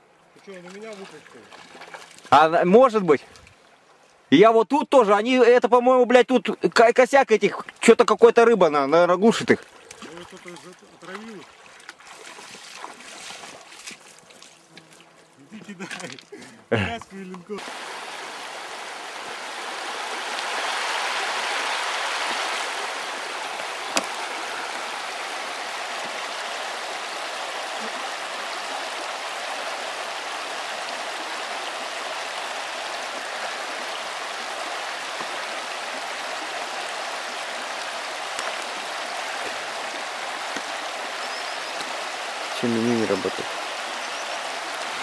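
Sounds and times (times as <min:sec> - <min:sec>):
river flowing over stones: 0:09.0 - 0:14.5, 0:17.5 - 0:45.0.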